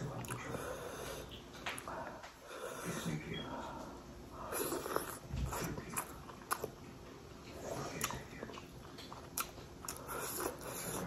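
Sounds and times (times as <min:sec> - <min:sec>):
person chewing dumplings: 0:04.5 - 0:11.0.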